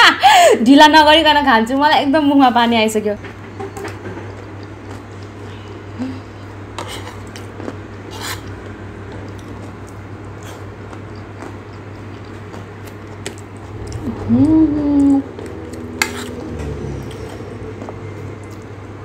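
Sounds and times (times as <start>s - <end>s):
steady low hum: 0.0s - 19.0s
chewing: 3.8s - 5.8s, 6.8s - 19.0s
metal spoon scraping a plate: 6.8s - 7.4s, 8.1s - 8.5s, 16.0s - 17.4s.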